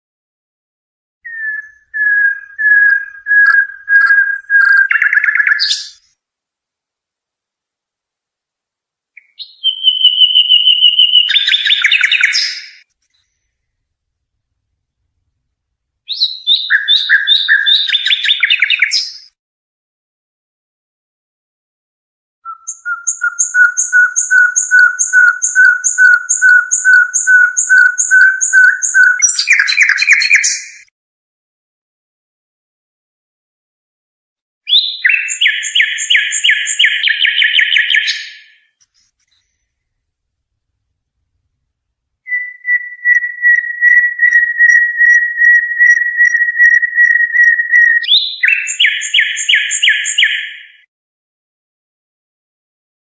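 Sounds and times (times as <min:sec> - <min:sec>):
songbird song: 0:01.2 - 0:06.2, 0:09.1 - 0:13.6, 0:16.0 - 0:19.4, 0:22.4 - 0:30.9, 0:34.6 - 0:39.8, 0:42.2 - 0:50.9
whistled pulsing trill: 0:22.5 - 0:30.3, 0:42.3 - 0:50.0.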